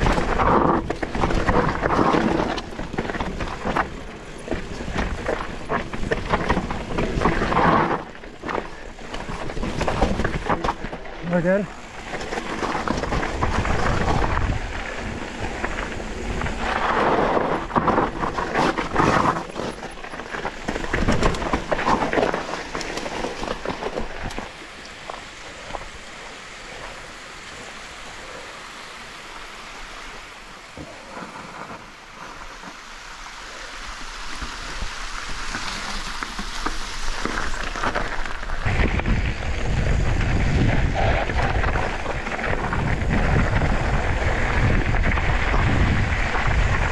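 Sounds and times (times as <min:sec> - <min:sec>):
wind buffeting microphone: 0:00.0 - 0:22.6, 0:37.9 - 0:46.9
bike tyres rolling over rough ground: 0:00.0 - 0:46.9.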